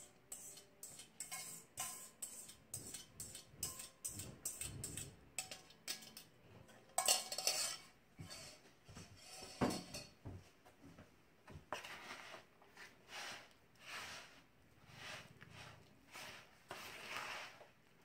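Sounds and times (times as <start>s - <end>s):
dishes and utensils clattering: 0.0s - 10.4s
metal bowl knocking: 0.8s - 7.8s.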